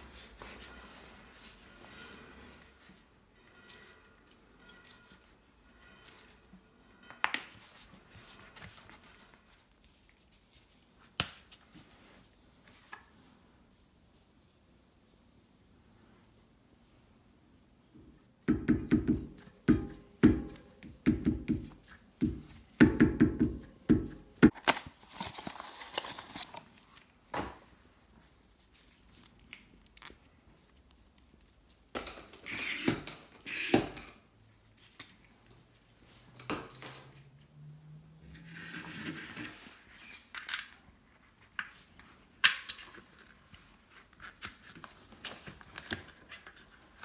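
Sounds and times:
packaging rustling and crinkling: 0:24.5 - 0:27.3.

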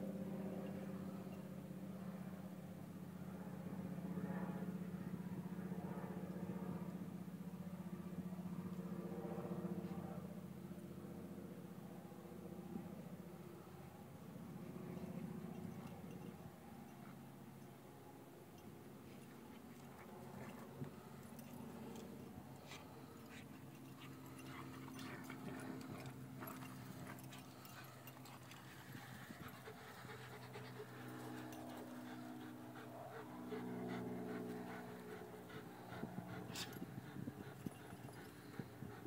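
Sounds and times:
dogs panting: 0:14.9 - 0:17.7, 0:18.9 - 0:39.0.

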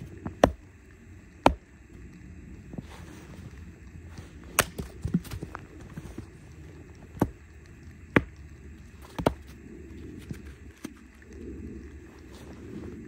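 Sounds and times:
hatchet splitting firewood: 0:00.0 - 0:00.7, 0:01.4 - 0:01.7, 0:04.4 - 0:06.0, 0:07.0 - 0:07.4, 0:08.1 - 0:08.4, 0:09.0 - 0:09.6.

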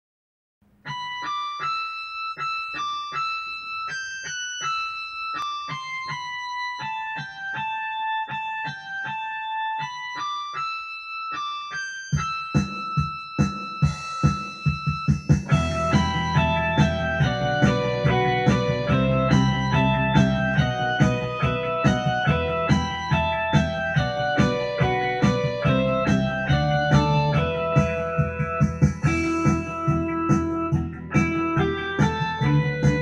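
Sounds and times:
electric piano melody: 0:00.9 - 0:33.0
regular beat: 0:11.7 - 0:33.0
low bass notes: 0:15.5 - 0:33.0.

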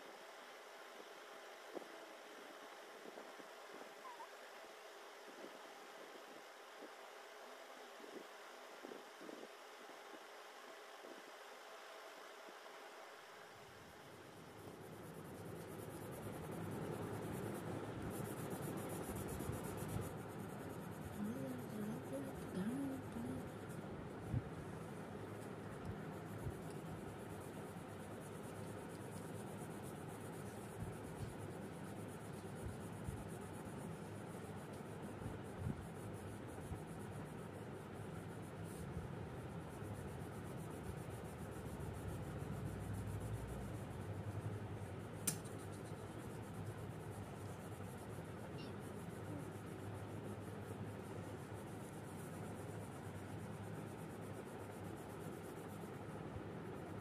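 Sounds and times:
pencil clicks: 0:45.2 - 0:46.1.

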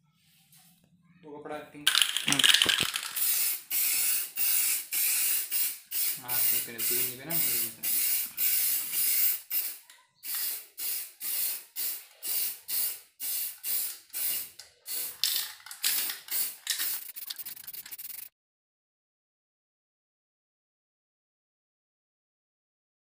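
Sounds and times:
spray can hissing in bursts: 0:01.9 - 0:18.3.

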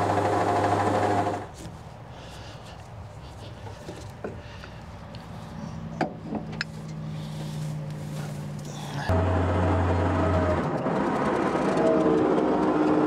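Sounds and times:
low engine hum: 0:01.3 - 0:13.0
truck engine whining close by: 0:05.3 - 0:13.0.

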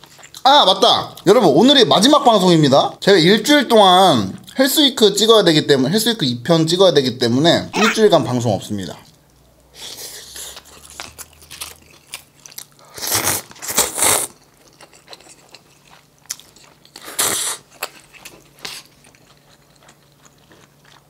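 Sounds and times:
wet chewing and smacking: 0:00.0 - 0:00.5, 0:10.4 - 0:21.0
noisy noodle slurps: 0:12.9 - 0:14.4.

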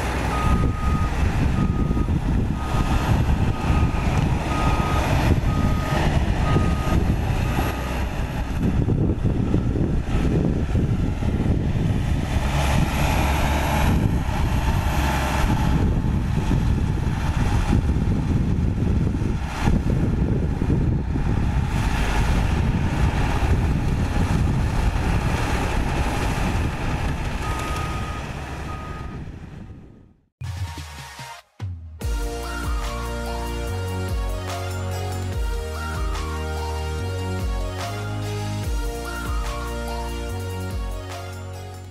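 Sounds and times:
bulldozer diesel engine: 0:00.0 - 0:30.0, 0:32.1 - 0:41.9
reversing alarm beeps: 0:00.3 - 0:07.8, 0:27.4 - 0:29.2.

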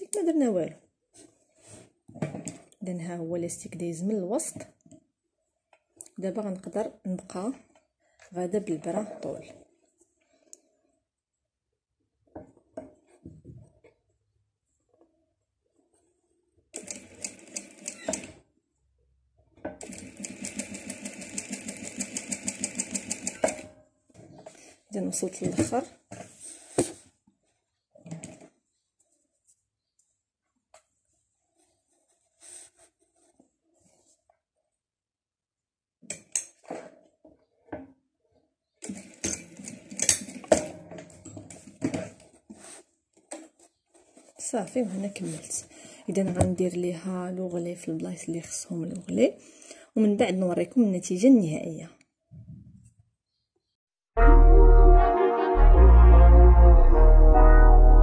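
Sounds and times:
sewing machine stitching: 0:16.8 - 0:18.4, 0:19.8 - 0:23.7, 0:38.8 - 0:40.6.

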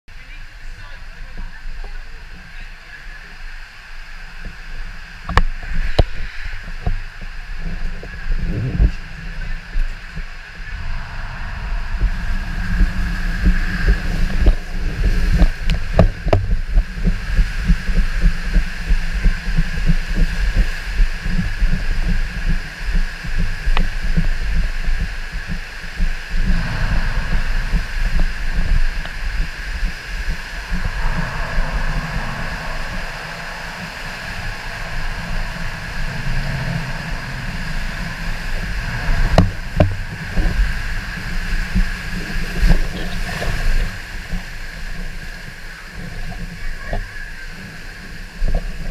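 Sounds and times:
raft rushing through water slide: 0:00.2 - 0:48.9
high-pitched hum: 0:09.4 - 0:17.7, 0:24.4 - 0:45.2.

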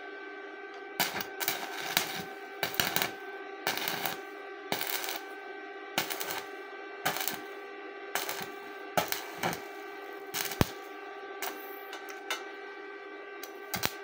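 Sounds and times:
steady hum: 0:00.0 - 0:14.0
welding arc crackling and spitting: 0:01.0 - 0:05.3, 0:06.0 - 0:06.5, 0:07.1 - 0:07.5, 0:08.2 - 0:12.2, 0:13.4 - 0:14.0.

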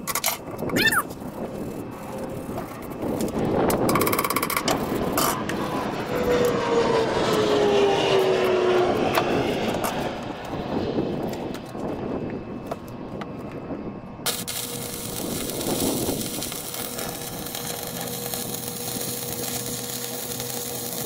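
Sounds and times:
welding arc crackling and hissing: 0:00.6 - 0:06.1, 0:14.3 - 0:21.0.

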